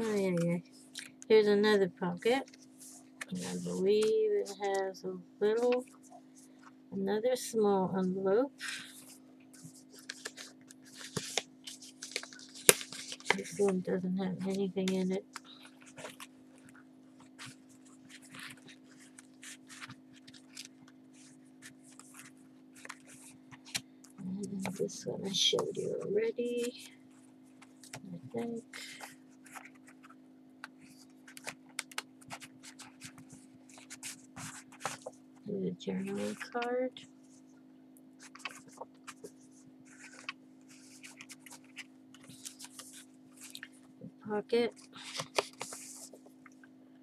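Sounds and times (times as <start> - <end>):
steady low hum: 0.0 - 47.0
paper rustling and scraping: 8.6 - 13.8, 14.4 - 23.8, 27.6 - 30.2, 30.8 - 35.2, 38.2 - 43.8, 44.8 - 46.3.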